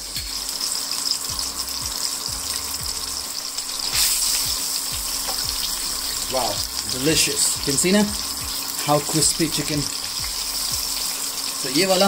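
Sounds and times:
music with steady beat: 0.0 - 11.6
chicken sizzling in hot oil: 0.0 - 12.0.

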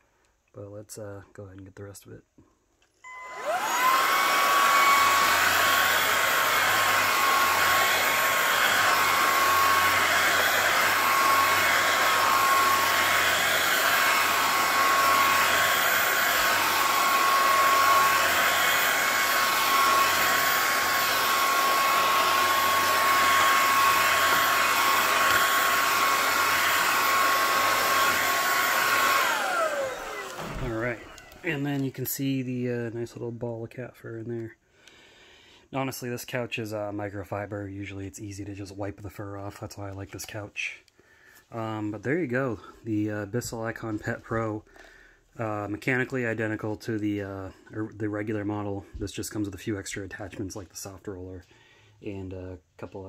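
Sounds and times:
vacuum cleaner motor whine: 3.0 - 31.6.

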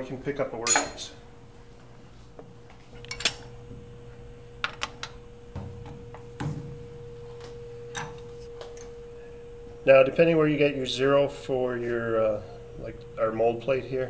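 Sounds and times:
faint steady hum: 0.0 - 14.0
metal clinking in vise: 0.7 - 1.1, 3.0 - 3.6.

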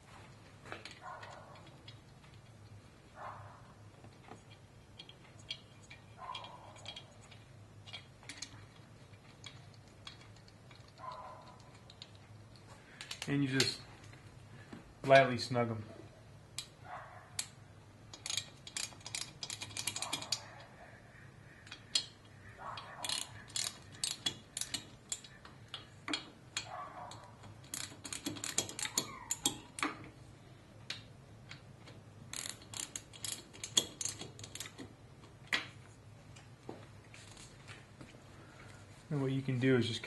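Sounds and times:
hand ratchet clicking: 18.1 - 20.5, 22.8 - 30.0, 32.3 - 34.9.

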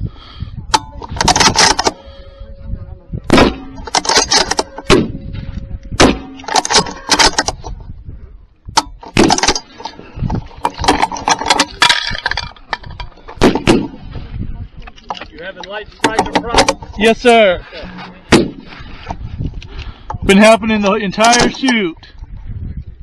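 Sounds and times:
rifle action metallic clicks: 3.8 - 5.0.

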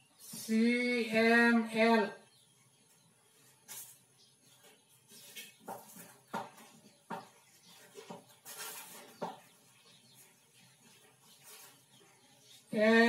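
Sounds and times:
chalk tapping and scratching: 4.6 - 12.2.

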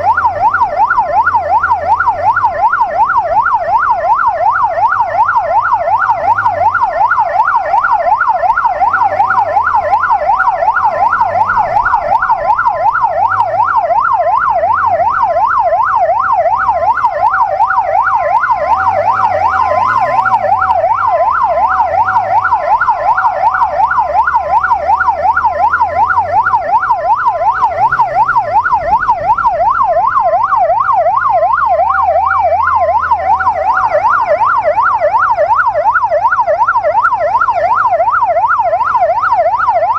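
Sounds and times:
two-note hi-lo siren tone: 0.0 - 38.8
police siren yelping: 0.0 - 39.9
motorcycle engine revving: 8.7 - 13.8, 18.3 - 30.4.

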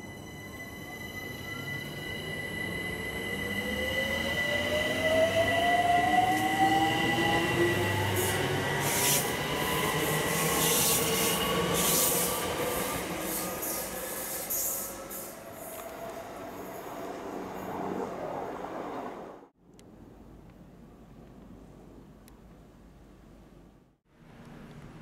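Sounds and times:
wheels squealing on rails: 0.0 - 19.3.

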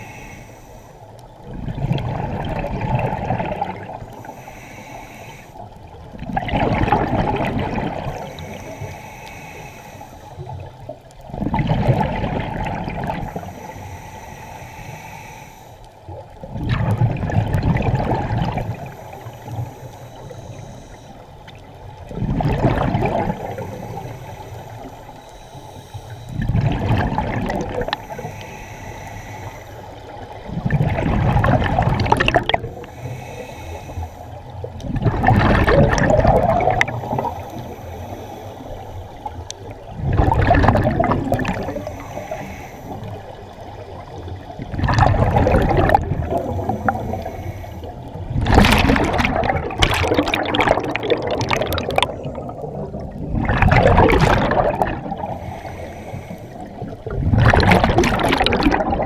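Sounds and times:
diver's breath bubbling underwater: 1.5 - 4.1, 6.1 - 8.8, 11.3 - 13.6, 16.4 - 18.9, 22.1 - 24.1, 26.3 - 28.4, 30.4 - 32.9, 34.8 - 37.8, 39.8 - 43.2, 44.6 - 59.0.

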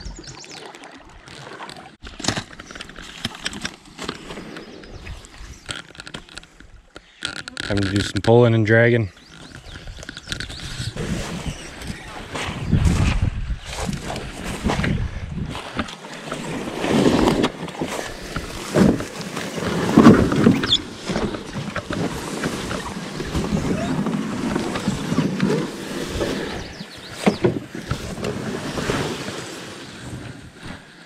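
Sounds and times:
canoe hull scraping through grass: 10.5 - 31.0
canoe knocks: 27.1 - 28.5.

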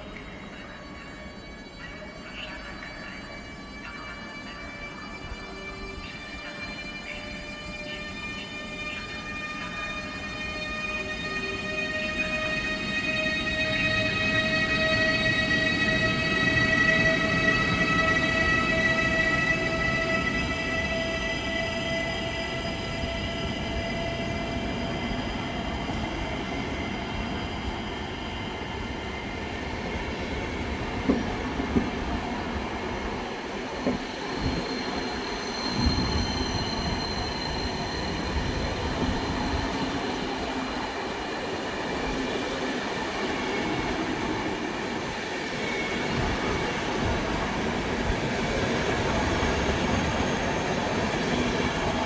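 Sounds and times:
train wheels rumbling on rail: 5.1 - 52.0
wheel squeals: 33.8 - 39.9.

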